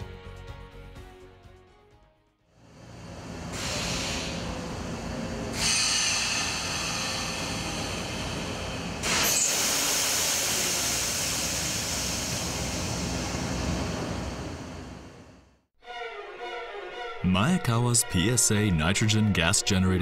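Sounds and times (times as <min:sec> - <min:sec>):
gas generator rumbling: 0:02.7 - 0:15.5
gas venting hiss: 0:03.5 - 0:14.0.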